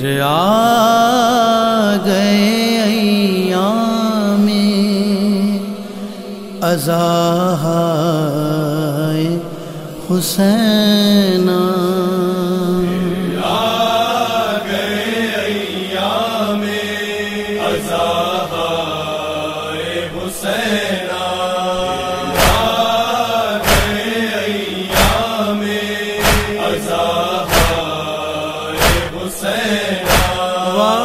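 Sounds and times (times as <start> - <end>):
solo voice chanting: 0.0 - 31.0
steady low drone: 15.7 - 29.3
sharp beats: 22.2 - 24.2, 24.9 - 25.4, 26.2 - 28.0, 28.8 - 29.2, 30.0 - 30.5.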